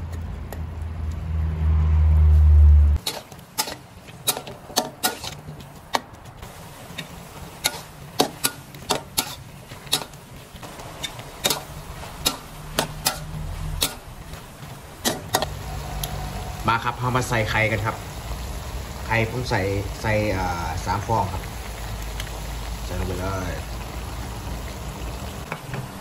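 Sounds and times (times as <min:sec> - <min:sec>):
metal spatula scraping a wok: 0:03.0 - 0:05.6, 0:06.9 - 0:16.8.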